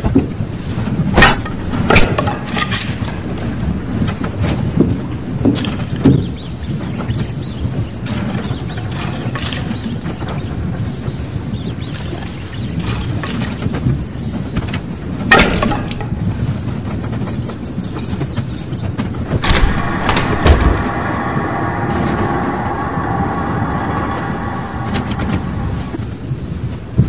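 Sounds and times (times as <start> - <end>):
rats scurrying: 5.6 - 22.8
rats squeaking: 5.6 - 23.1
low steady rumble: 19.4 - 27.0.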